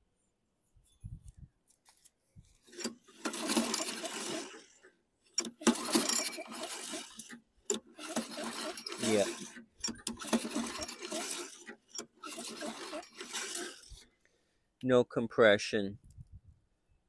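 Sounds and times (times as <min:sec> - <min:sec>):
recoil starter pulls: 0:02.6 - 0:14.1.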